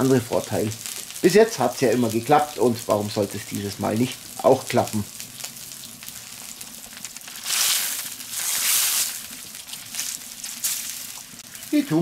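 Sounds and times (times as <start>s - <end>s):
food sizzling on hot steel: 0.0s - 12.0s.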